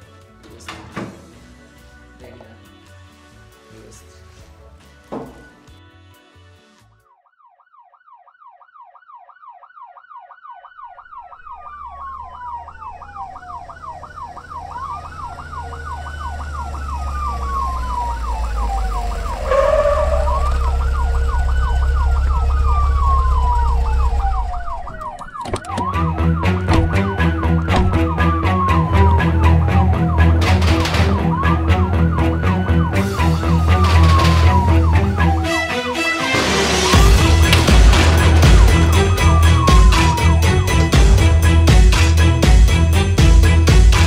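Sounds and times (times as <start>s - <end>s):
siren yelp: 7.0s - 42.0s
siren wail: 7.0s - 42.5s
rhythmic music track: 25.8s - 44.0s
sudden hit: 36.3s - 40.2s
deep rumble: 36.9s - 41.8s.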